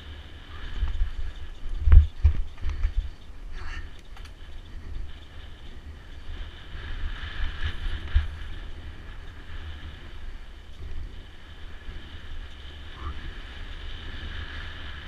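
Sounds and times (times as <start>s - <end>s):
bike tyres hissing on dirt trail: 0.0s - 15.0s
deep rumble: 0.0s - 15.0s
wind buffeting microphone: 0.0s - 15.0s.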